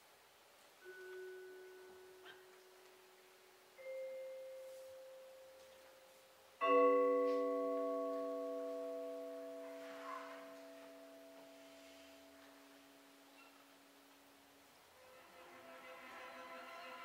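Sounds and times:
vibraphone notes ringing: 0.8 - 3.1, 3.7 - 14.6.

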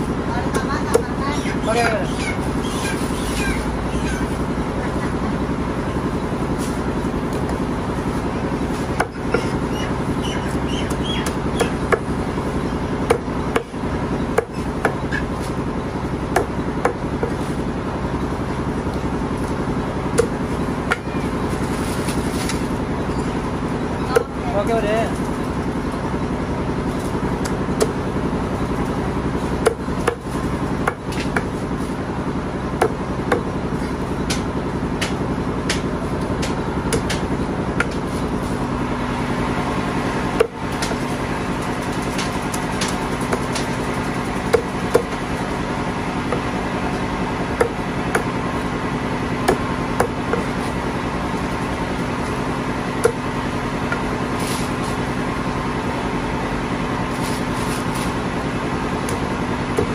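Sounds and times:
background hum: 0.0 - 59.9
cleaver chopping on wood: 8.8 - 9.6, 10.8 - 12.1, 13.0 - 13.8, 14.4 - 15.3, 16.3 - 17.4, 20.1 - 21.1, 24.1 - 24.4, 27.4 - 28.0, 29.6 - 31.5, 32.8 - 33.5, 34.2 - 38.1, 40.3 - 41.1, 41.9 - 45.3, 47.5 - 48.4, 49.4 - 50.7, 53.0 - 53.3, 53.9 - 54.7, 59.0 - 59.9.

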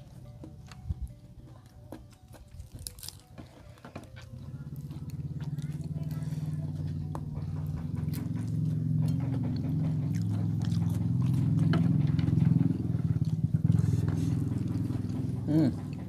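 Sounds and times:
chewing: 0.0 - 16.0
low engine hum: 4.4 - 16.0.

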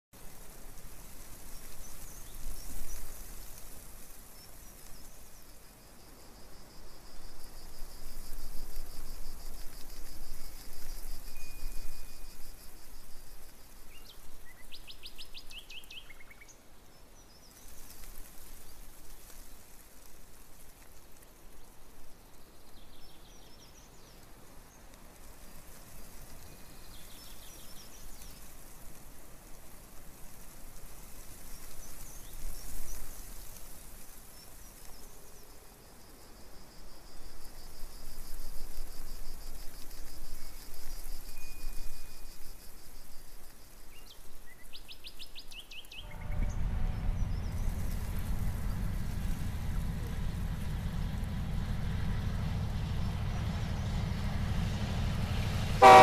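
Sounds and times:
background noise: 0.1 - 56.0.

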